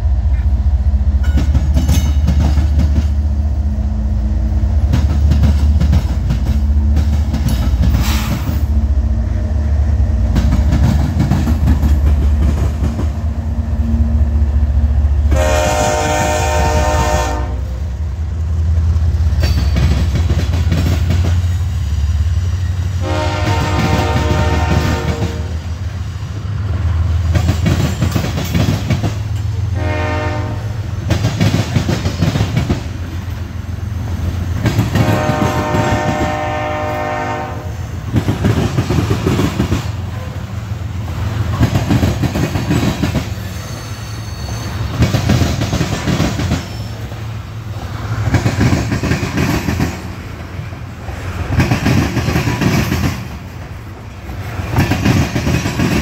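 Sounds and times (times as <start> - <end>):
train wheels clacking: 0.0 - 3.4, 4.8 - 8.8, 10.2 - 13.4, 18.7 - 25.5, 27.0 - 30.2, 30.9 - 56.0
freight train rumbling past: 0.0 - 56.0
distant locomotive horn: 13.3 - 18.1, 22.9 - 25.8, 29.6 - 31.0, 34.9 - 38.0.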